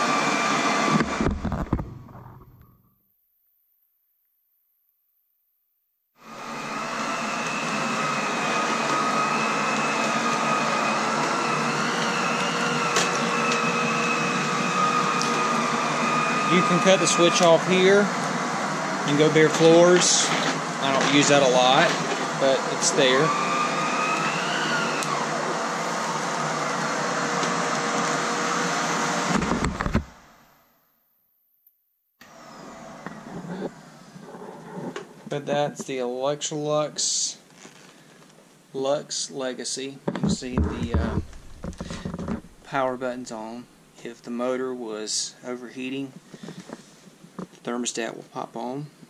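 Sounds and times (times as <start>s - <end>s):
vacuum cleaner running: 0.0s - 2.7s, 6.2s - 30.7s, 32.2s - 35.4s, 39.2s - 43.6s.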